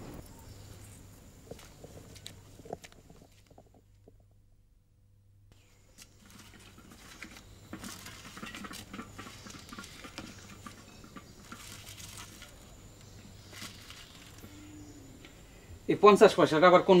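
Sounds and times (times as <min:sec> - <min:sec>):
banknotes rustling and crinkling: 0:05.6 - 0:14.5.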